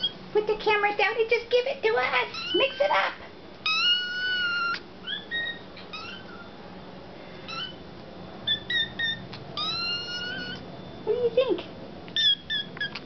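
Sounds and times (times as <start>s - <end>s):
kittens meowing: 2.2s - 6.6s, 7.4s - 7.8s, 8.4s - 10.7s, 12.1s - 13.0s.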